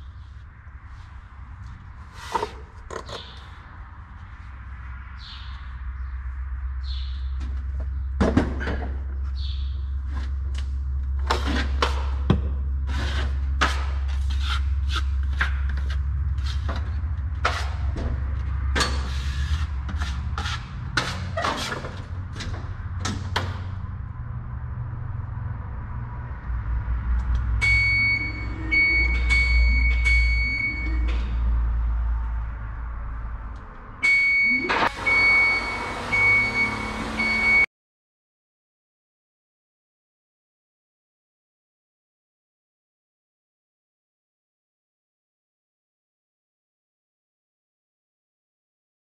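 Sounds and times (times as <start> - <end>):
drywall knife scraping compound: 12.8 - 17.9, 18.8 - 22.2
lift motion alarm beeping: 27.6 - 31.1, 34.0 - 37.7
lift motor running: 34.6 - 37.6.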